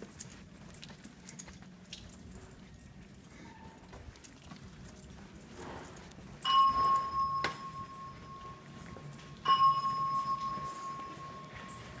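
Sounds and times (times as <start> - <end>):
faint footsteps walking: 0.0 - 12.0
fire alarm speaker steady tone: 6.4 - 12.0.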